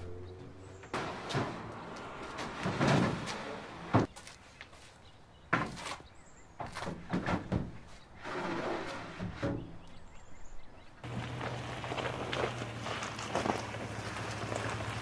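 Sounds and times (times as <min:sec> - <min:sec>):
wood sliding and scraping: 0:00.8 - 0:04.1, 0:06.7 - 0:09.8, 0:11.0 - 0:15.0
wooden knocks and thunks: 0:06.6 - 0:07.9.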